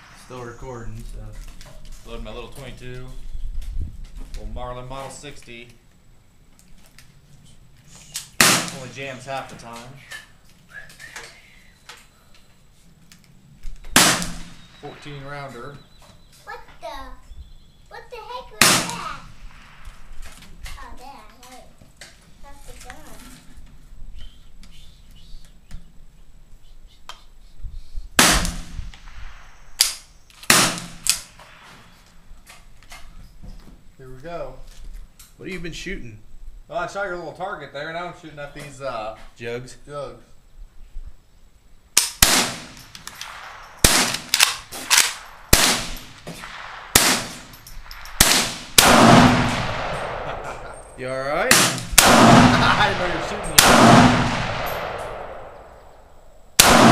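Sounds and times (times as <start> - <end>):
gunshots with ringing echo: 8.4 - 9.2, 14.0 - 15.5, 18.6 - 20.1, 28.2 - 29.9, 30.5 - 32.1, 42.1 - 56.9.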